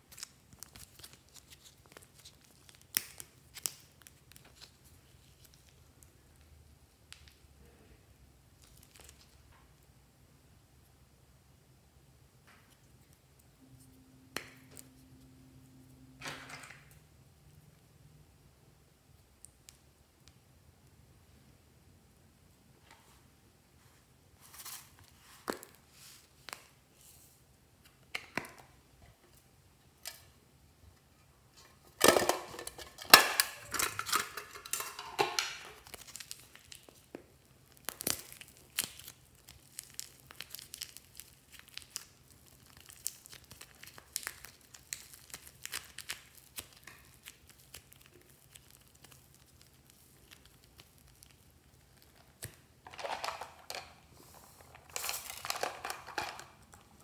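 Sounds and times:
crackling handling noises: 0.0 - 7.4, 8.5 - 9.9, 22.8 - 57.0
hands handling clay and slime: 0.0 - 7.6, 8.4 - 10.1, 22.6 - 57.0.

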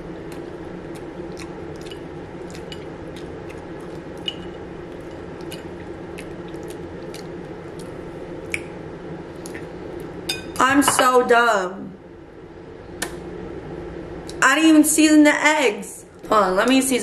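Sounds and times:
low background hum: 0.0 - 17.0
chewing with wet mouth clicks: 0.2 - 8.7.

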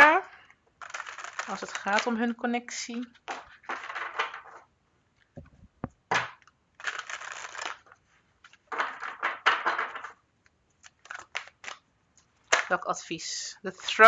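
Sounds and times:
cards shuffling: 0.8 - 2.3, 3.0 - 4.6, 5.4 - 11.8, 12.4 - 12.8
soft low thuds: 5.4 - 6.0.

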